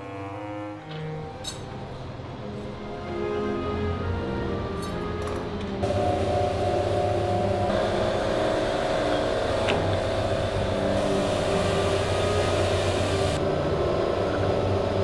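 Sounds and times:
rolling mill humming: 0:05.0 - 0:15.0.

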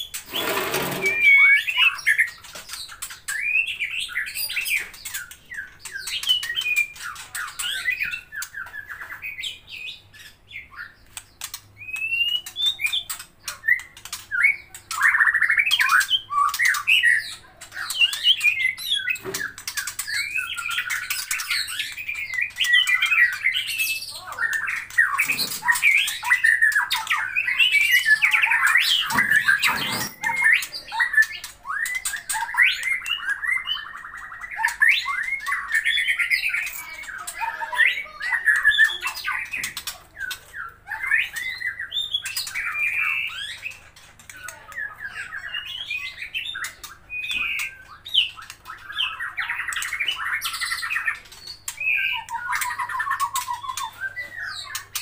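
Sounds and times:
bird singing whistles: 0:00.3 - 0:02.2, 0:45.6 - 0:54.8.

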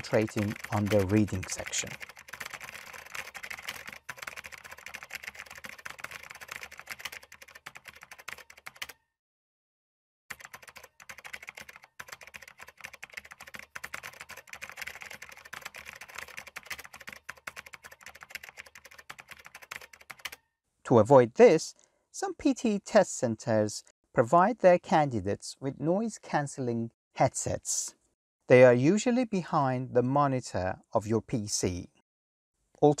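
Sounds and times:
rapid typing on keyboard: 0:00.0 - 0:09.0, 0:10.3 - 0:20.4.

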